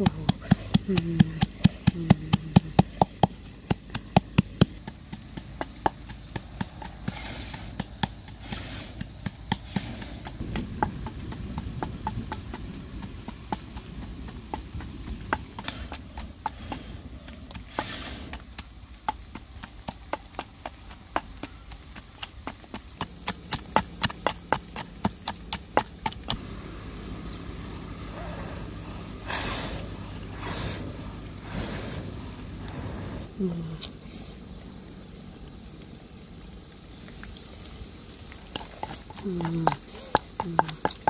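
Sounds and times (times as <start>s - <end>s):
wooden pestle pounding in mortar: 0.0s - 16.5s, 19.1s - 26.4s, 38.6s - 41.0s.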